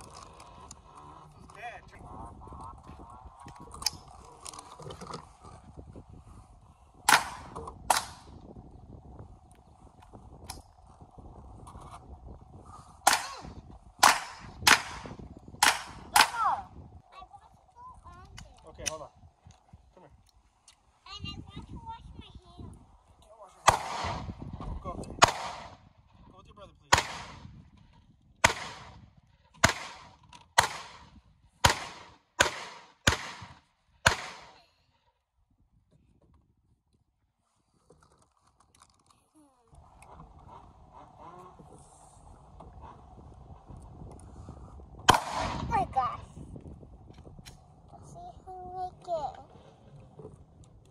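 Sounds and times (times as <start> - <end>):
handgun shots with echo: 7.1 - 8.2, 13.1 - 13.4, 14.0 - 16.4, 23.7 - 24.3, 25.2 - 25.8, 26.9 - 27.4, 28.4 - 28.9, 29.6 - 34.6, 45.1 - 45.7.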